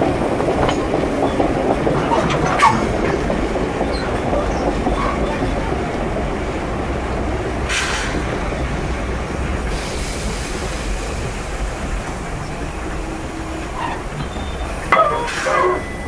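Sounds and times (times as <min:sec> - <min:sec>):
train rumbling along rails: 0:00.0 - 0:16.0
rattles and hisses: 0:00.5 - 0:16.0
sharp clank: 0:14.9 - 0:16.0.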